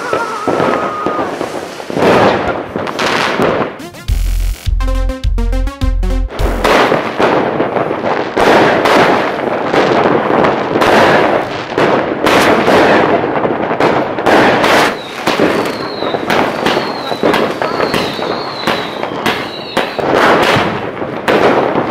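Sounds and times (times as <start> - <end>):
fireworks popping and crackling: 0.0 - 4.6, 6.3 - 21.9
jingle with pulsing bass beat: 3.8 - 6.7.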